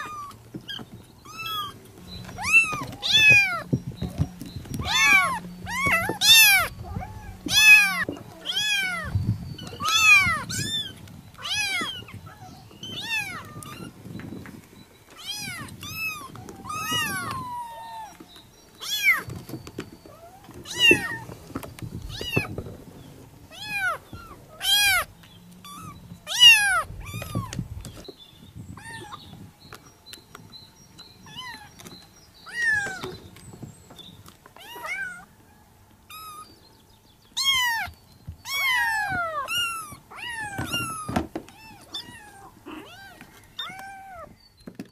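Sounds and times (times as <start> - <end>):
kittens meowing: 0.0 - 14.4, 15.1 - 19.4, 20.0 - 22.8, 23.4 - 28.0, 28.7 - 29.4, 31.2 - 33.2, 34.6 - 35.3, 36.1 - 36.5, 37.4 - 44.4.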